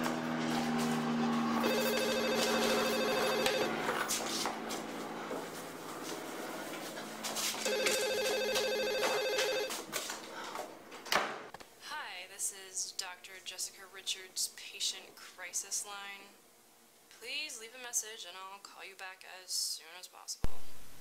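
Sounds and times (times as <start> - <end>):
telephone electronic warbling ring: 1.6 - 3.7, 7.7 - 9.7.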